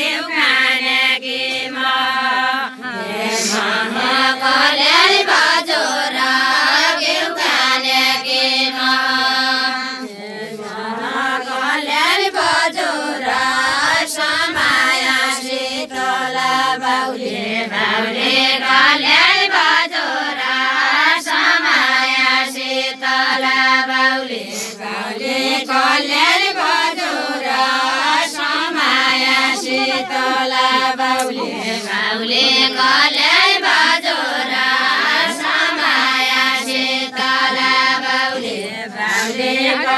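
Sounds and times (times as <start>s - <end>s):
women singing in unison: 0.0s - 39.9s.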